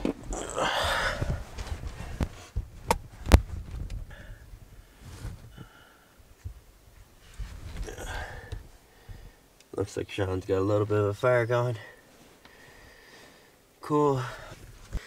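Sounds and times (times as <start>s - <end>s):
rustling of clothing and bedding: 1.0s - 4.1s, 4.9s - 5.5s, 6.4s - 8.0s, 12.0s - 13.5s, 14.4s - 15.0s.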